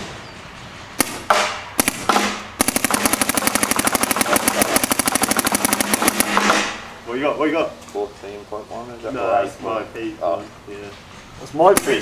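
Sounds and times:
paintball marker firing: 0:01.0 - 0:06.9, 0:11.7 - 0:12.0.

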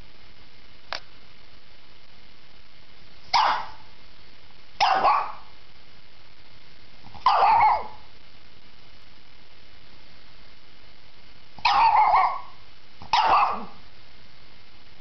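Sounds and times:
small dog barking: 0:03.3 - 0:03.9, 0:04.8 - 0:05.6, 0:07.1 - 0:08.1, 0:11.6 - 0:13.8.

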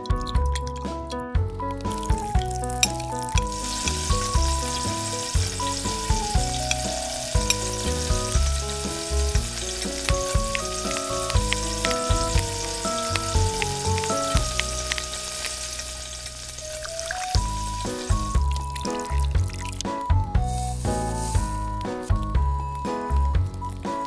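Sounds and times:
background music with beat: 0:00.0 - 0:24.0
oil sizzling in a wok: 0:01.7 - 0:24.0
spoon stirring in a wok: 0:01.8 - 0:16.5.

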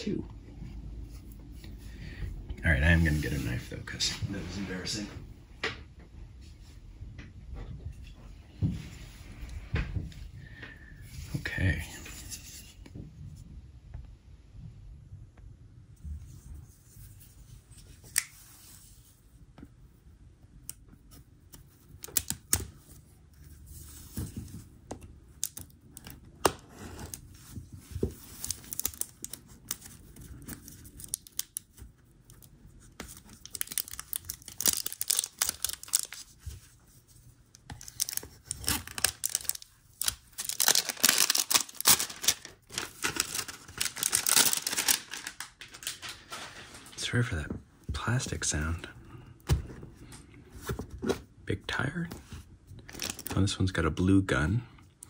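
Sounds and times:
plastic wrap crinkling and tearing: 0:28.0 - 0:36.5, 0:37.6 - 0:47.1, 0:52.8 - 0:53.4.

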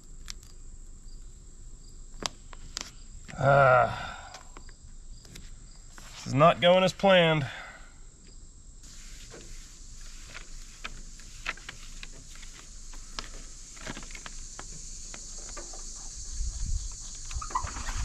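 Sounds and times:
high insect chirring: 0:00.0 - 0:07.5, 0:08.1 - 0:18.0
paper backing crackling as peeled: 0:09.2 - 0:14.6.

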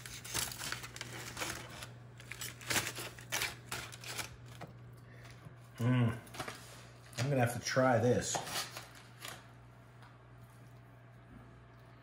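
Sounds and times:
aluminium foil crinkling: 0:00.0 - 0:05.4, 0:06.3 - 0:09.6.

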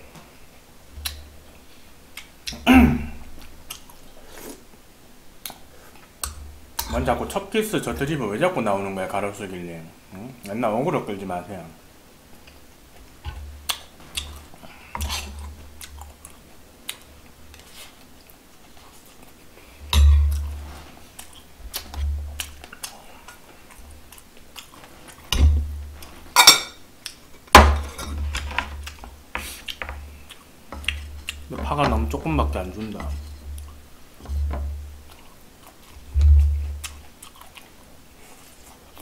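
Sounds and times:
chewing: 0:13.6 - 0:25.3, 0:28.3 - 0:31.6, 0:35.0 - 0:39.0.

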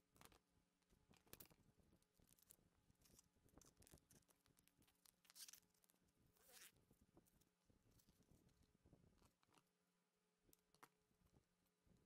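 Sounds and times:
scraping and rustling of material: 0:01.3 - 0:09.8.

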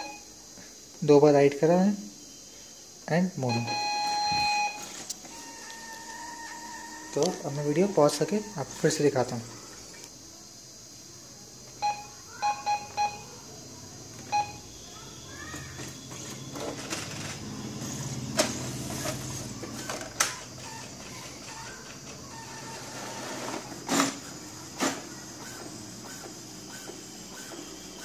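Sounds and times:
printer motor hum: 0:03.4 - 0:10.1, 0:14.0 - 0:28.0
printer key beeps: 0:11.8 - 0:13.3, 0:14.2 - 0:14.7.

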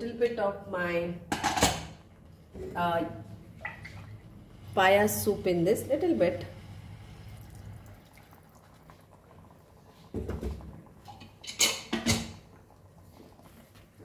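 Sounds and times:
soup pouring in a stream: 0:07.3 - 0:10.0.

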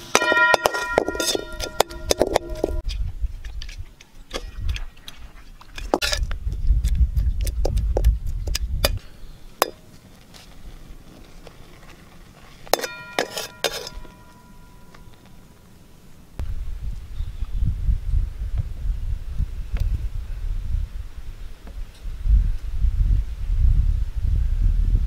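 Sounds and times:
metal ladle scraping a wok: 0:00.0 - 0:02.8, 0:12.7 - 0:14.9.

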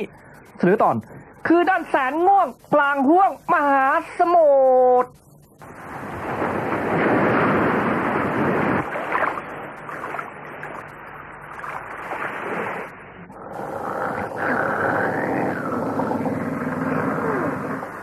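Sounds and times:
water rushing past ship hull: 0:05.6 - 0:13.0.

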